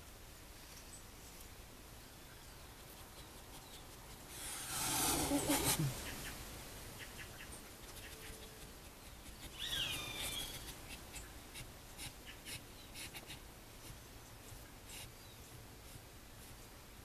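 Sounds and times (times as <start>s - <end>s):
high animal squeak: 9.4s - 10.8s.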